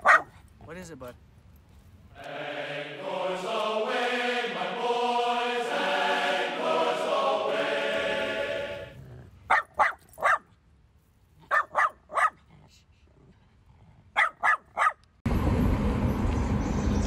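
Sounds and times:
dog yapping: 0.0s - 0.4s, 9.5s - 10.5s, 11.4s - 12.4s, 14.2s - 15.0s.

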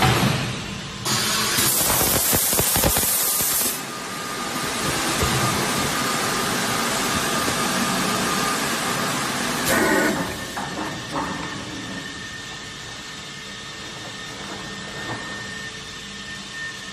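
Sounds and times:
machine running with faint whine: 0.0s - 16.9s
loud hiss of air: 0.3s - 10.6s.

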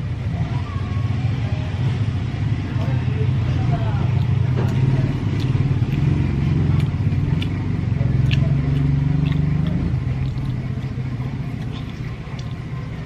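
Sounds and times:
engine humming: 0.0s - 13.0s
chewing clicks: 4.1s - 13.0s.

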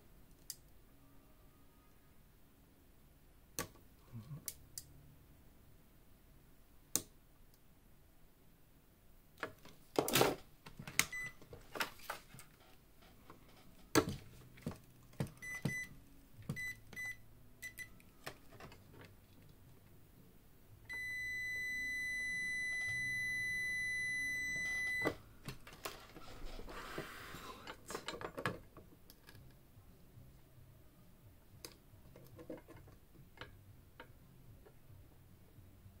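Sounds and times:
electronic beeper beeping: 20.9s - 25.1s.

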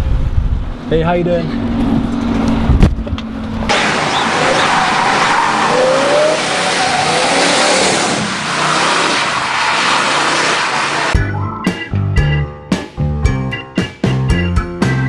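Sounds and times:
car engine revving: 0.7s - 11.2s
tyres hissing on wet road: 3.7s - 11.2s.

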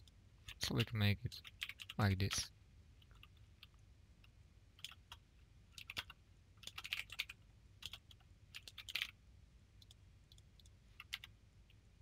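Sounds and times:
faint low hum: 0.0s - 12.0s
computer keyboard typing: 0.4s - 2.0s, 3.0s - 3.8s, 4.8s - 9.2s, 9.8s - 11.3s.

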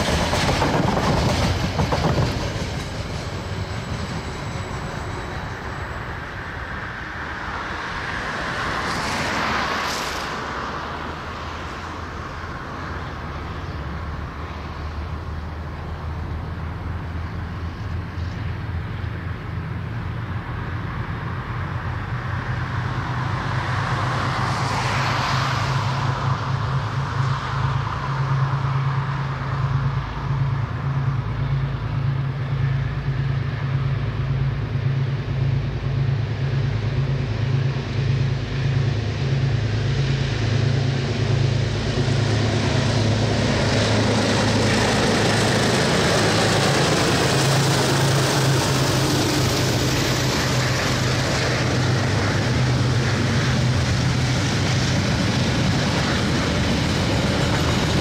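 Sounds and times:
locomotive engine throbbing: 30.6s - 58.0s
rushing swells: 33.4s - 58.0s.

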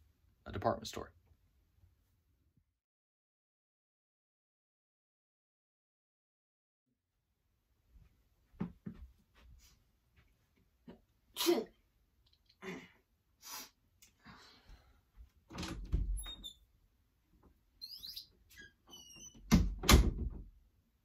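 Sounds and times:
person sneezing: 11.4s - 11.8s.

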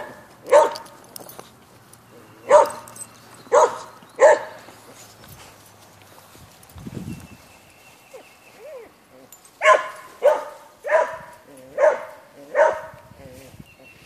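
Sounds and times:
dog barking: 0.0s - 0.8s, 2.4s - 2.9s, 3.5s - 4.6s, 9.6s - 13.0s.

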